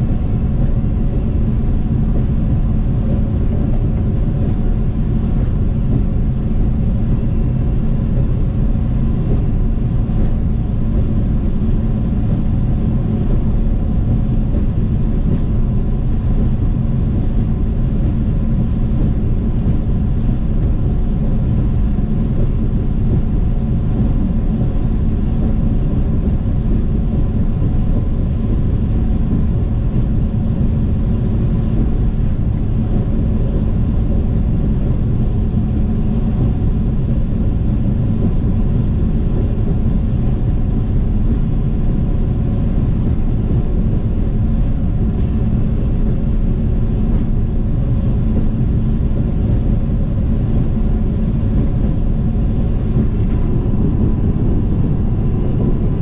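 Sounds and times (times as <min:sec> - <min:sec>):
faint steady hum: 0:00.0 - 0:56.0
vehicle road noise: 0:51.5 - 0:56.0.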